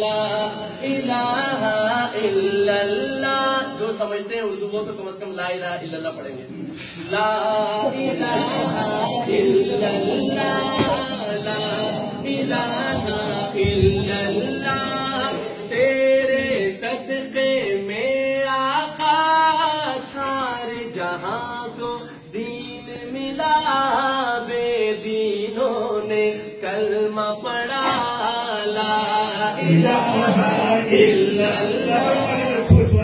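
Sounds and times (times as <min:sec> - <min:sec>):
man chanting devotional song: 0:00.0 - 0:08.1, 0:09.8 - 0:30.4.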